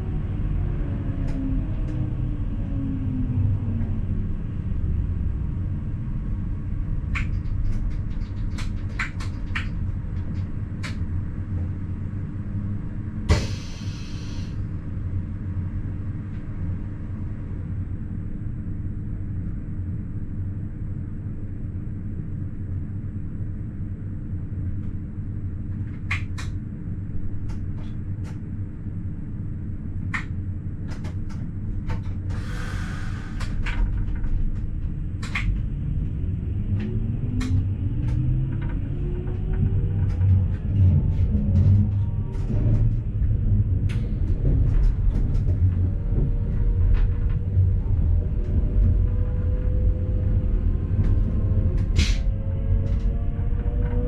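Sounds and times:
electric train rumble: 0.0s - 54.0s
low whine: 0.0s - 54.0s
brief hiss: 13.3s - 14.5s.

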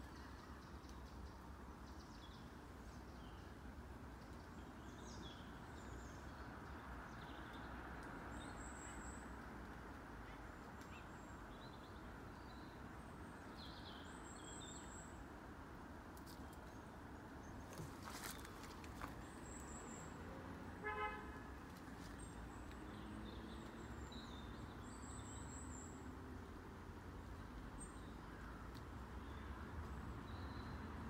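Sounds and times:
traffic rumble: 0.2s - 31.0s
car horn toot: 20.8s - 21.4s.

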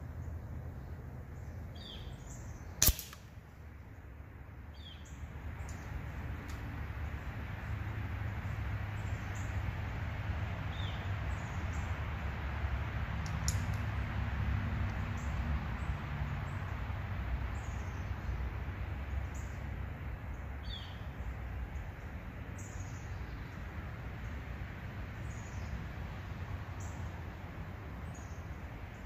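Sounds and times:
birds chirping: 0.0s - 3.0s, 3.8s - 10.0s, 20.2s - 24.4s, 27.8s - 29.0s
sharp click: 2.8s - 3.3s.

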